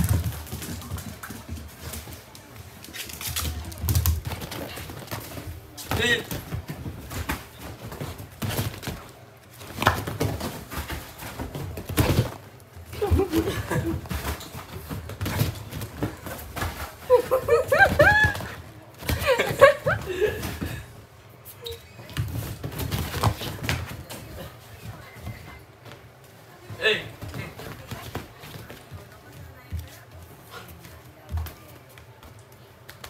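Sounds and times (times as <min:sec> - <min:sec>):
puppy paws thudding on sofa: 0:00.0 - 0:21.0, 0:22.0 - 0:33.0.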